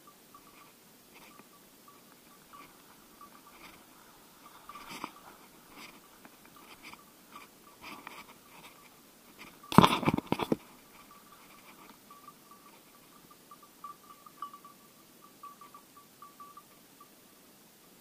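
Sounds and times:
close scraping and crackling: 0.4 - 13.1
dry bracken rustling and crunching: 2.1 - 12.0
footsteps in undergrowth: 2.2 - 12.0.

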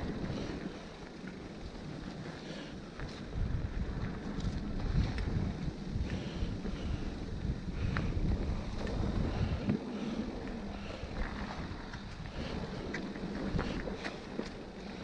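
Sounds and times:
bike clicks and rattles: 0.0 - 15.0
bike tyres on dirt trail: 0.0 - 15.0
wind rumble on microphone: 1.7 - 15.0.

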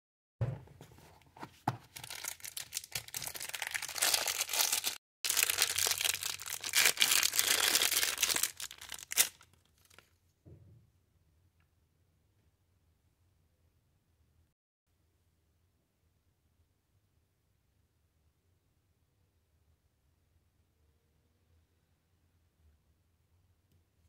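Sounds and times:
plastic wrapping crinkling and tearing: 1.9 - 10.1.

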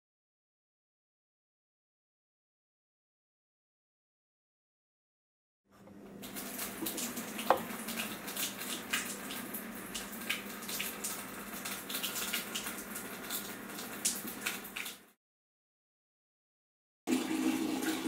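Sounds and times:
water pouring into plastic bucket: 17.1 - 18.0.

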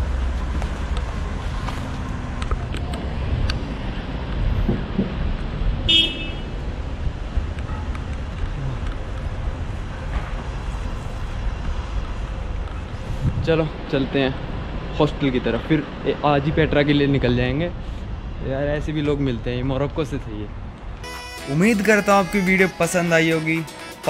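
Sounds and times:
street traffic rumble: 0.0 - 24.0
car horn toot: 5.9 - 6.5.

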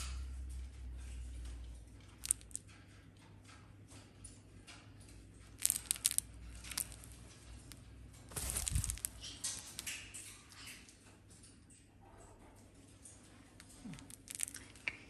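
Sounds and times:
bird beak crunching fabric toy: 5.6 - 9.9.

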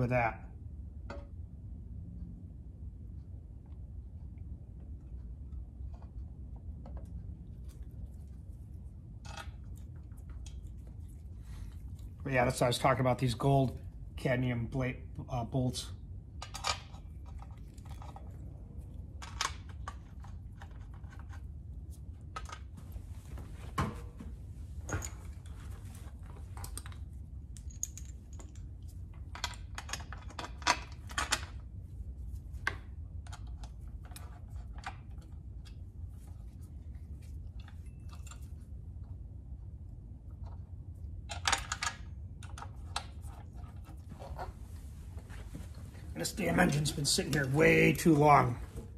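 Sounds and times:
small metallic clinks: 27.6 - 28.7.

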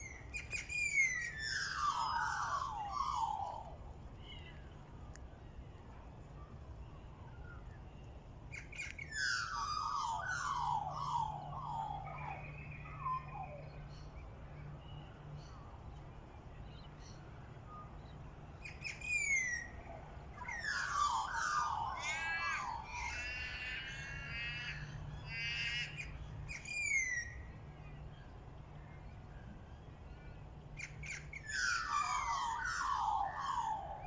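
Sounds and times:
harsh bird calls: 0.0 - 3.7, 8.6 - 13.7, 20.4 - 27.4, 30.8 - 34.0.

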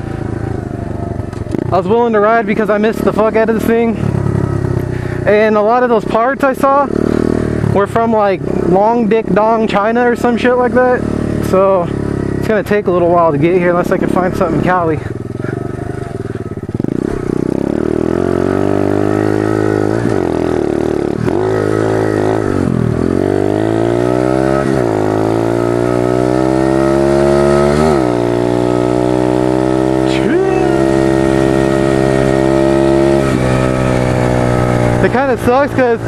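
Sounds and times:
small motorbike engine revving: 6.8 - 9.0, 13.5 - 36.0.

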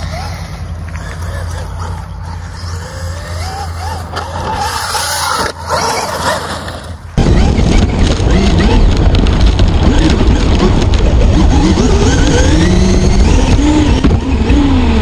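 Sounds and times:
electric motor whining: 0.0 - 15.0
loud rough rumble: 0.0 - 15.0.

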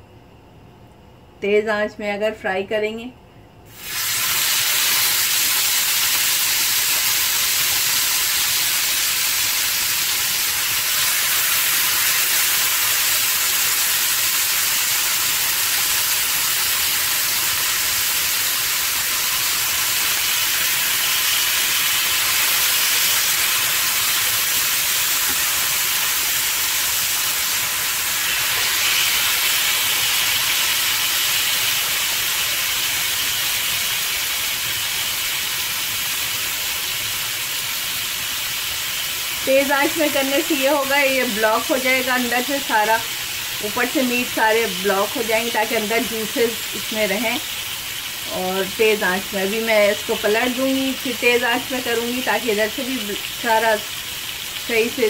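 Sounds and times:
chicken sizzling in hot oil: 3.7 - 55.0.

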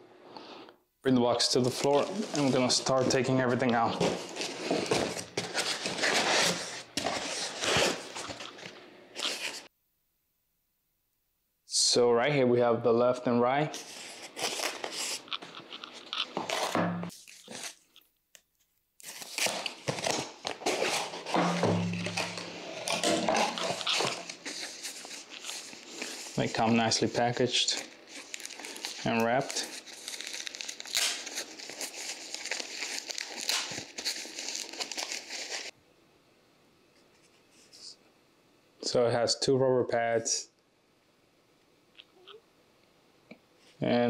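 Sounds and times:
cardboard rustling and tearing: 3.8 - 8.6, 13.8 - 18.0, 19.0 - 27.0, 27.8 - 35.7
packaging wrap crinkling: 13.8 - 35.7.

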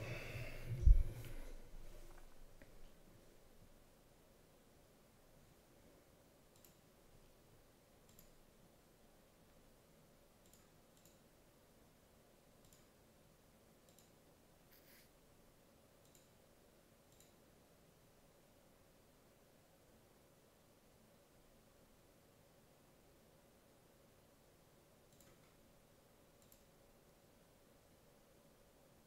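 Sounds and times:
faint room hum: 0.0 - 29.0
computer mouse clicks: 6.5 - 6.9, 8.0 - 8.4, 10.4 - 11.3, 12.6 - 13.0, 13.8 - 15.1, 16.0 - 16.4, 17.0 - 17.5, 25.1 - 25.6, 26.3 - 26.8.

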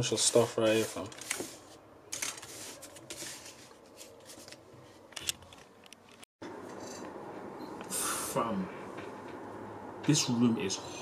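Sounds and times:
paper rustling and slapping: 0.0 - 5.6.

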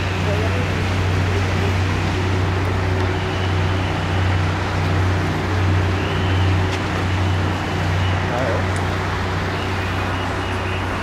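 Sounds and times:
constant low hum: 0.0 - 11.0
road traffic rumble: 0.0 - 11.0.

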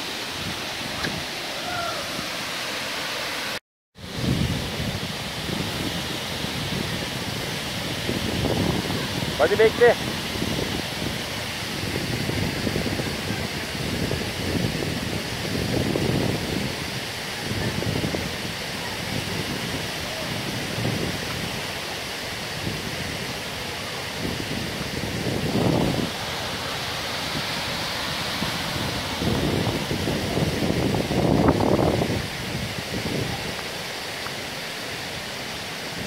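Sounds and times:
flowing creek water: 0.0 - 36.0
waterfall: 0.0 - 36.0
wind buffeting microphone: 4.0 - 33.6.

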